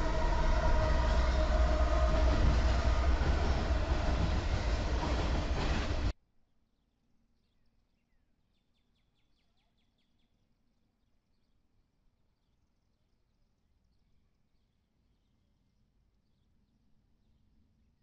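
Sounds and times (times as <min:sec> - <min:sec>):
diesel locomotives passing: 0:00.0 - 0:06.1
wheel and rail noise: 0:00.0 - 0:06.1.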